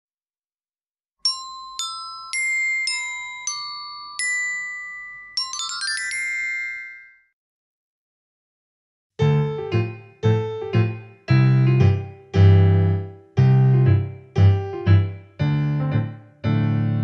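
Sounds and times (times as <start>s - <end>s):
glockenspiel jingle: 1.2s - 7.4s.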